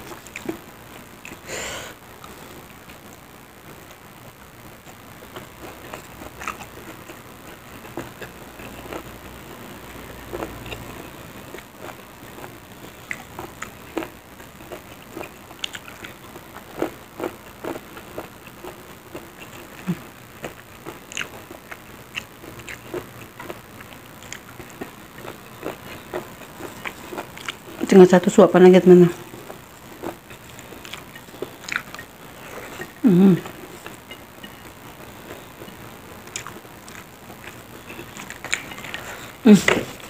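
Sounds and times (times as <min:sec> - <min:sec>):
chewing and mouth smacks: 0:04.8 - 0:09.1, 0:10.3 - 0:27.9, 0:29.3 - 0:34.6, 0:35.2 - 0:39.3.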